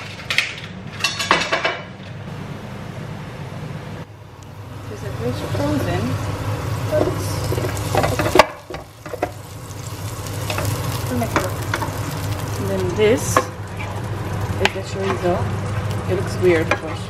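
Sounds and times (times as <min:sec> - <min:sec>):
steady low hum: 0:00.0 - 0:17.0
bacon sizzling in a pan: 0:04.8 - 0:17.0.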